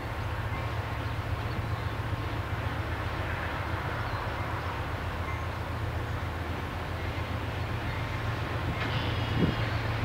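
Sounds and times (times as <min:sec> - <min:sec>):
freight cars rolling on rails: 0:00.0 - 0:10.0.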